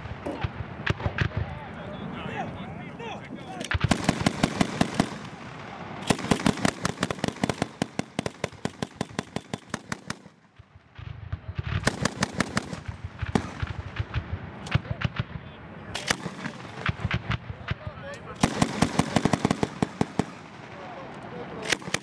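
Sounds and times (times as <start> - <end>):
rapid gunfire: 3.7 - 10.6, 11.4 - 20.8, 21.6 - 22.0.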